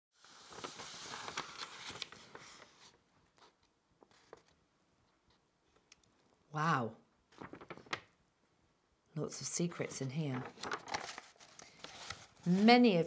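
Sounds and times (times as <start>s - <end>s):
paper scroll rustling: 0.2s - 4.6s, 7.3s - 8.1s, 10.0s - 13.0s.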